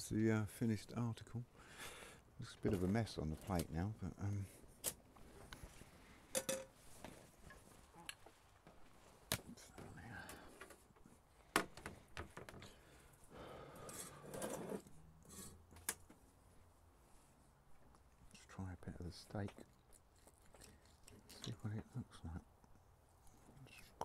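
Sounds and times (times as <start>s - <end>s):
knife and fork scraping on plate: 13.9s - 15.6s.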